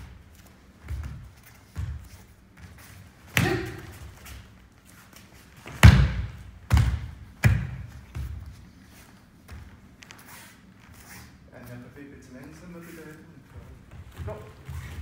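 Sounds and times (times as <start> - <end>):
bodies thudding on foam mats: 5.6 - 8.5.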